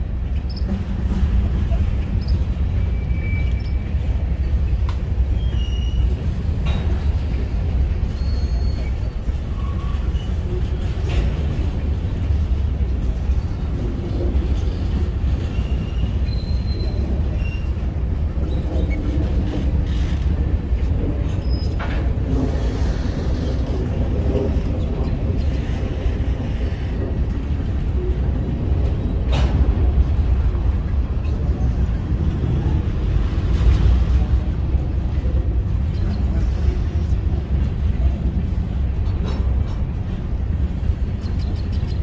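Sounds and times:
train wheels rumbling on rail: 0:00.0 - 0:42.0
high wheel squeals: 0:08.1 - 0:10.3.

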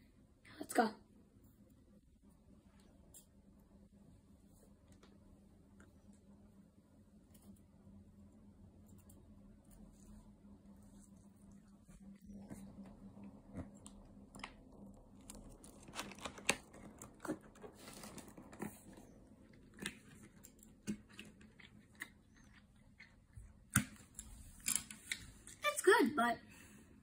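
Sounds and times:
chewing close to microphone: 0:13.5 - 0:23.8.

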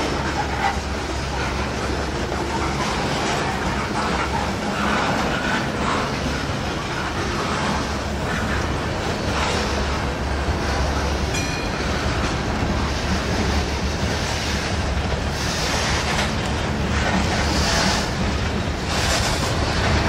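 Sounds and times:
steel wheels rumbling on rail: 0:00.0 - 0:20.0.

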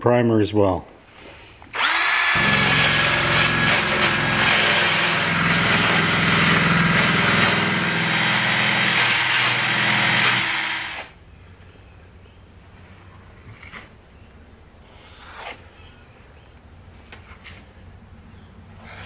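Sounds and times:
drill whine: 0:01.7 - 0:11.1.

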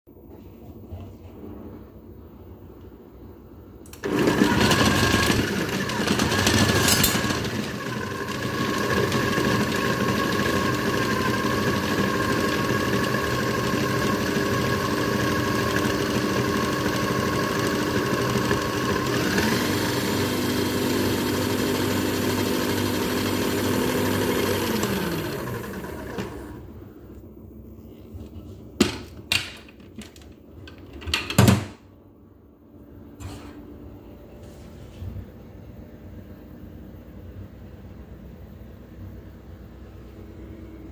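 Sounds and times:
food processor motor chopping: 0:04.0 - 0:26.6.

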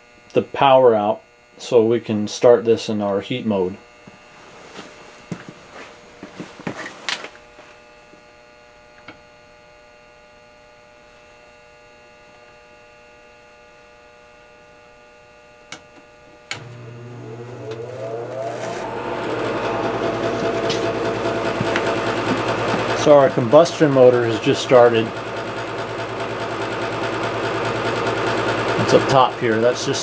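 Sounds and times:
electrical hum: 0:00.0 - 0:30.0
furnace motor whining: 0:15.7 - 0:30.0.

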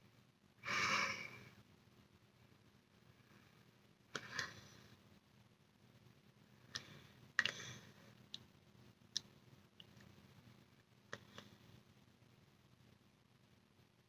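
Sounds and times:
mouth clicks and lip smacks: 0:09.1 - 0:10.1.

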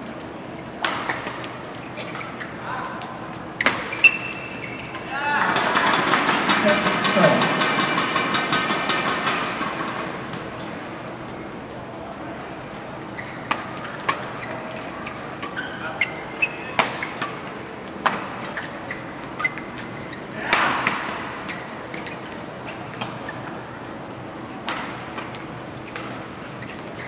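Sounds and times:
shoes squeaking on court: 0:00.0 - 0:05.2, 0:12.6 - 0:20.3, 0:20.9 - 0:27.0
murmur of large hall: 0:00.0 - 0:27.0.

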